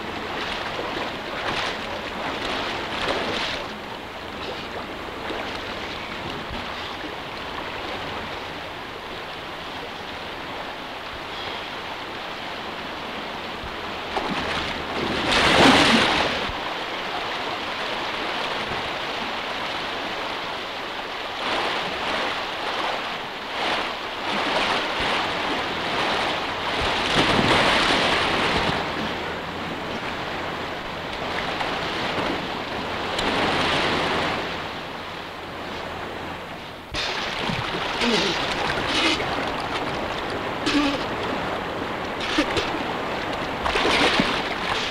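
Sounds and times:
river water rushing: 0:00.0 - 0:44.9
person splashing in water: 0:00.4 - 0:03.7, 0:14.4 - 0:16.5, 0:36.9 - 0:41.2, 0:42.2 - 0:44.9.

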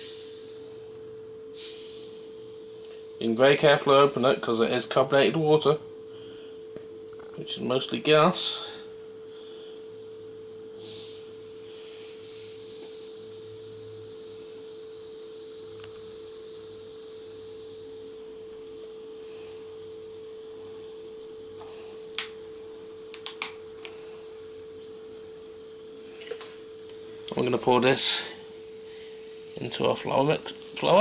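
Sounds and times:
gas hissing: 0:00.0 - 0:31.0
steady one-pitch hum: 0:00.0 - 0:31.0.

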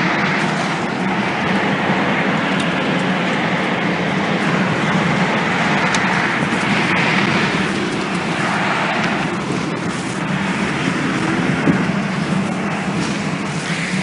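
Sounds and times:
roar of tornado wind: 0:00.0 - 0:14.0
microphone rubbing on clothing: 0:06.0 - 0:14.0.

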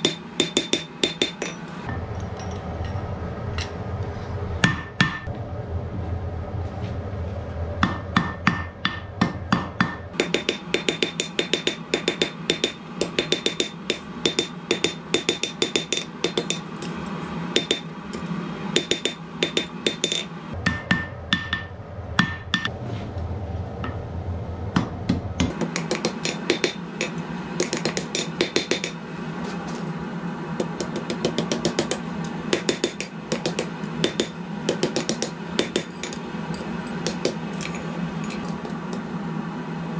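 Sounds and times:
hammer ringing on anvil: 0:00.0 - 0:02.5, 0:18.8 - 0:22.7
low hum: 0:00.4 - 0:39.9.

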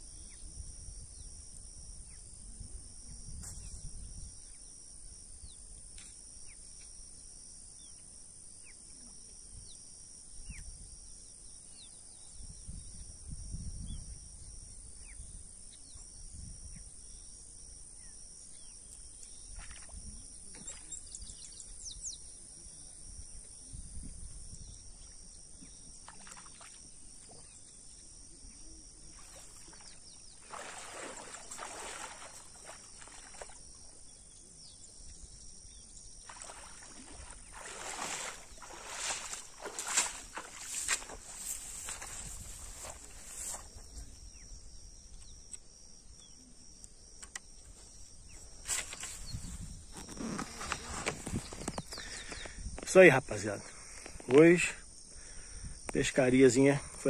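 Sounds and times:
wind rumbling on microphone: 0:00.0 - 0:04.6, 0:12.2 - 0:15.6, 0:23.1 - 0:25.2, 0:29.1 - 0:33.5, 0:34.8 - 0:45.3, 0:47.6 - 0:52.9
insects trilling: 0:00.0 - 0:57.0
water splashing and sloshing: 0:26.0 - 0:27.5, 0:29.2 - 0:34.0, 0:36.2 - 0:43.9.

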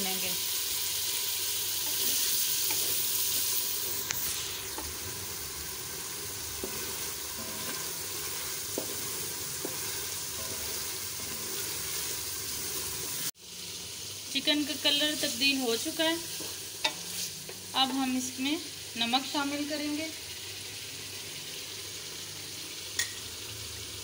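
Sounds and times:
chicken sizzling in hot oil: 0:00.0 - 0:24.0
wooden spatula scraping pan: 0:06.6 - 0:12.9.

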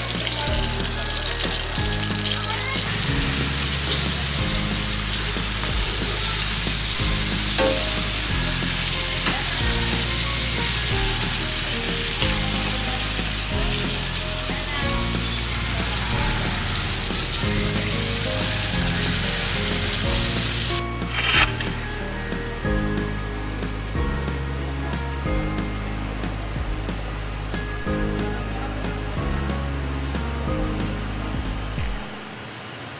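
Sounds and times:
metal skimmer stirring: 0:00.0 - 0:22.2
food deep-frying in oil: 0:00.0 - 0:24.4
background music with bass: 0:00.0 - 0:32.4.

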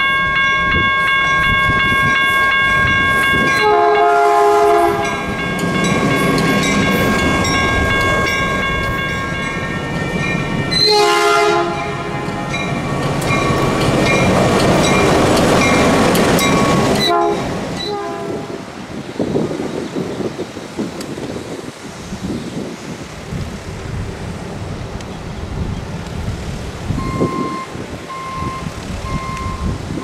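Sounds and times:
bell ringing: 0:00.0 - 0:04.2, 0:04.8 - 0:11.0, 0:11.7 - 0:17.2
locomotive engine and wheel noise: 0:00.0 - 0:30.0
locomotive horn blasts: 0:00.1 - 0:05.4, 0:10.7 - 0:12.6, 0:17.0 - 0:18.6.

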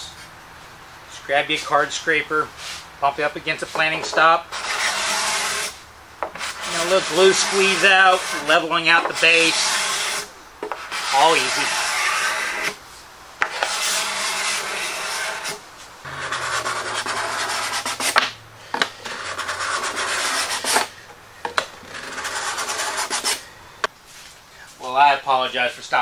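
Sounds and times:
steel scraper on wood: 0:03.6 - 0:12.8, 0:13.4 - 0:23.4.

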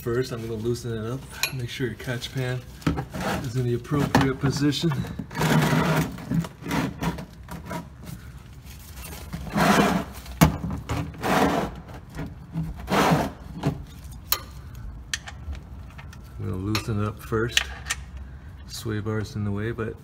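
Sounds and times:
rubbing and scraping: 0:00.1 - 0:14.3.

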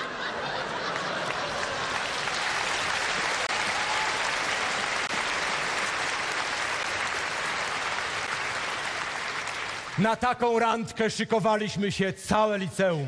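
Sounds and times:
large audience applauding: 0:00.0 - 0:10.3.

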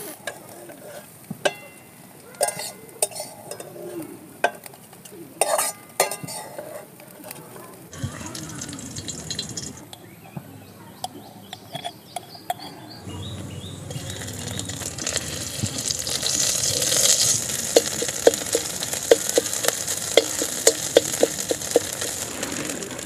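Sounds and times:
spatula scraping wok: 0:00.0 - 0:01.2, 0:02.5 - 0:04.0, 0:05.4 - 0:07.0, 0:07.9 - 0:10.0, 0:13.8 - 0:23.0
paste sizzling in hot oil: 0:07.9 - 0:09.8, 0:13.8 - 0:23.0
spoon clinking glass jar: 0:08.0 - 0:09.8.

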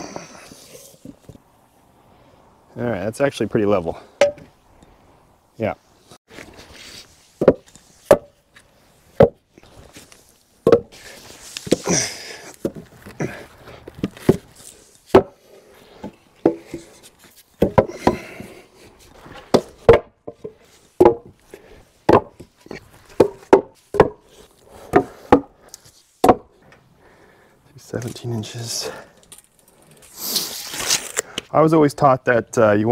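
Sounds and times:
wooden timbers knocking: 0:07.4 - 0:08.3, 0:09.2 - 0:09.4, 0:10.6 - 0:10.9, 0:17.6 - 0:18.4, 0:19.5 - 0:21.4, 0:22.1 - 0:24.2, 0:24.8 - 0:25.5, 0:26.2 - 0:26.6.

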